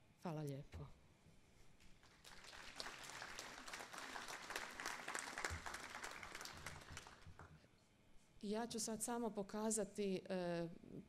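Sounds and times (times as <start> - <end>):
audience applauding: 2.0 - 7.5.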